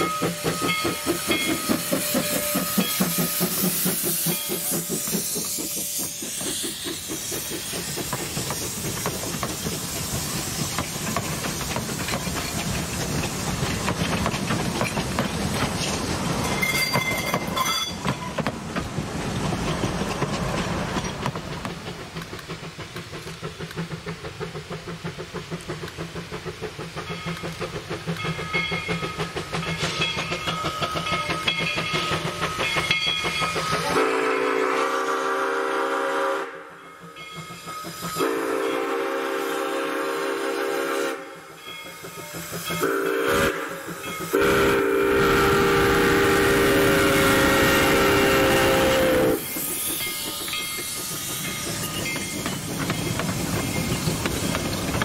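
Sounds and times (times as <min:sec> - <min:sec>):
train cars clicking over rail joints: 0:00.0 - 0:34.2, 0:41.4 - 0:55.0
steam locomotive exhaust chuffs: 0:00.0 - 0:55.0
steam whistle blowing: 0:33.7 - 0:36.8, 0:38.1 - 0:41.6, 0:42.8 - 0:49.8.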